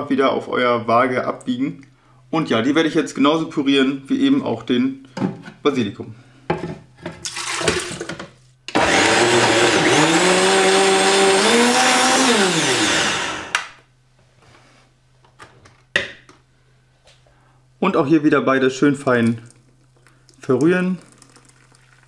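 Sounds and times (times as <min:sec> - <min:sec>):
blender motor running: 0:08.7 - 0:13.7
liquid pouring into blender jar: 0:19.1 - 0:22.0.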